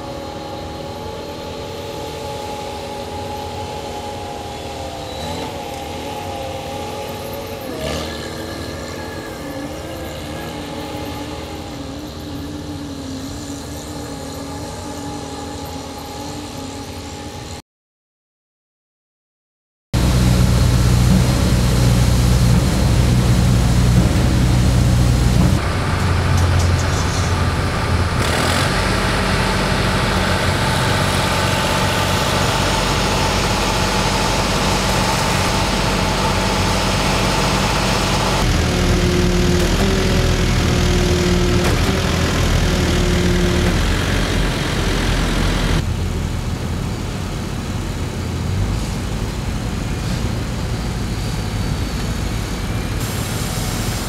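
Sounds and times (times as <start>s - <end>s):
heavy machinery engines running: 0.0s - 17.6s, 20.0s - 54.0s
crane engine idling: 20.0s - 54.0s.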